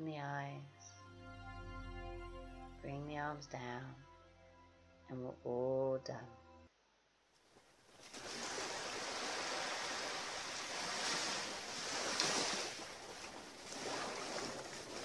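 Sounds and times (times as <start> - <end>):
small waves washing ashore: 7.9 - 15.0.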